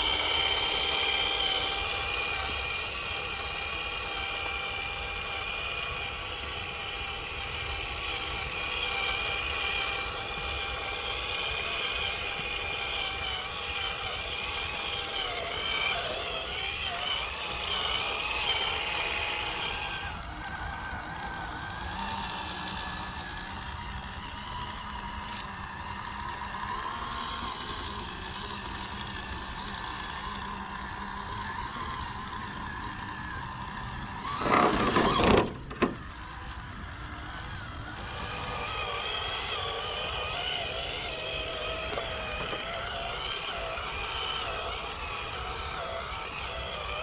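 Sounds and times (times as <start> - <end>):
small electric motor whine: 0.0 - 47.0
loud rough noisy burst: 34.2 - 36.1.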